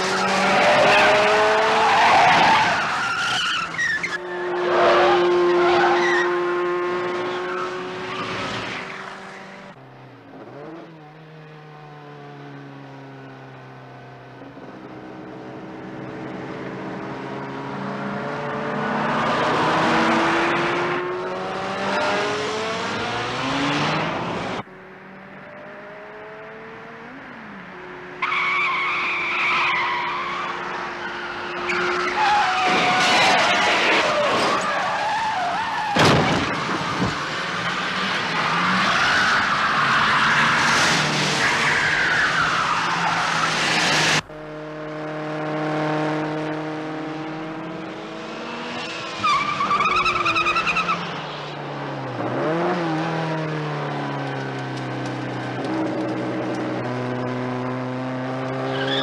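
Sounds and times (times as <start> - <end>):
tyres squealing and skidding: 0.0 - 9.8, 28.2 - 44.2, 48.3 - 51.6, 58.5 - 59.0
car engine revving high: 43.5 - 49.2.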